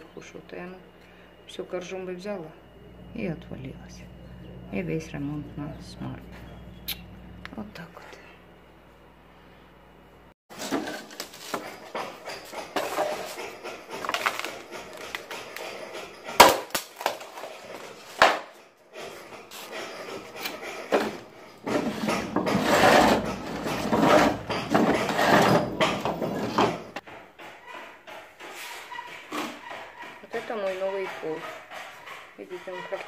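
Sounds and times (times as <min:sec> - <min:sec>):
wooden planks clattering: 0:10.5 - 0:30.1.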